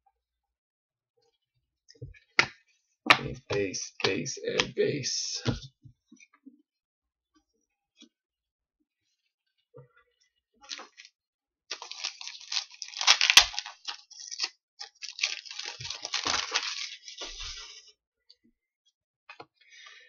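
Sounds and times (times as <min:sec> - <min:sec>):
foil ripping: 0:11.7 - 0:17.5
foil wrapper crinkling: 0:11.7 - 0:17.5.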